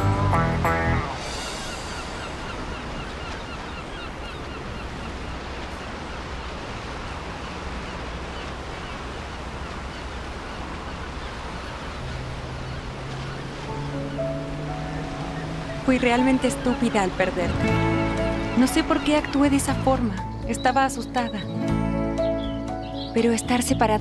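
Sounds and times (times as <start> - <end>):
music: 0.0 - 2.6, 13.7 - 24.0
birds chirping: 1.0 - 24.0
sea water lapping: 1.1 - 24.0.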